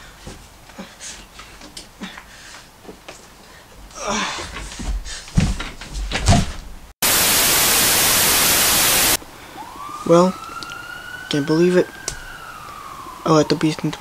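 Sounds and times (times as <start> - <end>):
static hiss burst: 7.0 - 9.2.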